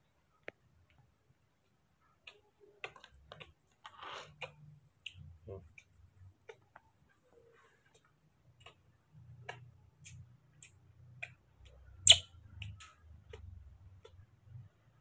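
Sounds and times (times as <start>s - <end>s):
baby monkey suckling clicks: 2.2s - 3.6s, 4.3s - 6.8s, 7.9s - 14.2s.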